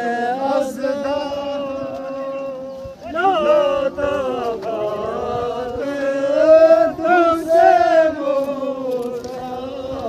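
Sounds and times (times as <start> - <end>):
men chanting: 0.0 - 10.0.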